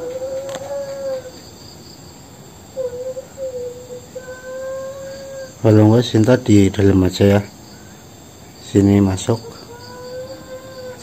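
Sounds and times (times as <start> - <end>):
wavering wail-like tone: 0.0 - 1.3
crickets chirping: 0.0 - 11.0.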